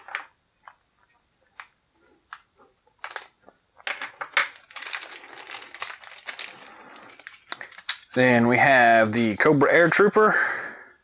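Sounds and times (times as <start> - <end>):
plastic bag crinkling: 4.3 - 9.6.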